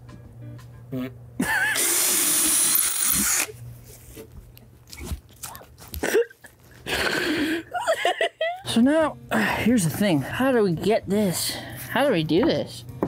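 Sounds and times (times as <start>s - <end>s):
power drill boring through plywood: 1.7s - 3.5s.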